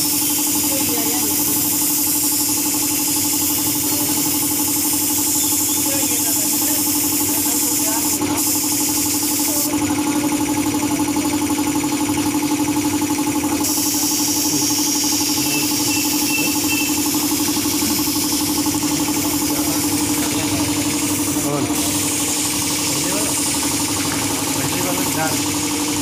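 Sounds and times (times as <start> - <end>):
air compressor running: 0.0 - 26.0
high hiss of air: 13.7 - 20.2.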